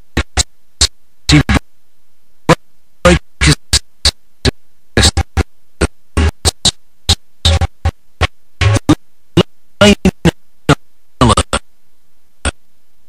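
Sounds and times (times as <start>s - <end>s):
background music: 8.6s - 9.0s.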